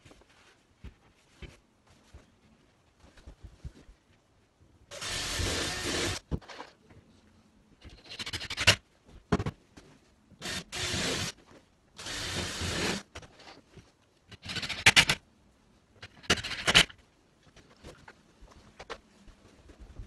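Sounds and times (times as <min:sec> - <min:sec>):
cordless drill bursts into chipboard: 0:10.4 - 0:11.3.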